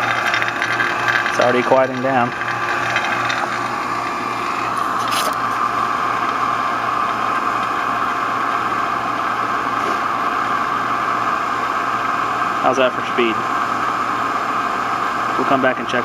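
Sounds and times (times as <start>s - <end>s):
vacuum pump humming and hissing: 0.0s - 16.0s.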